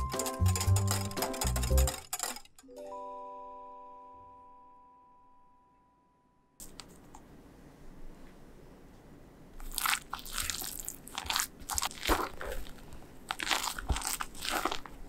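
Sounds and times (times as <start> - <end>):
spatula squishing and scraping batter: 9.6 - 15.0.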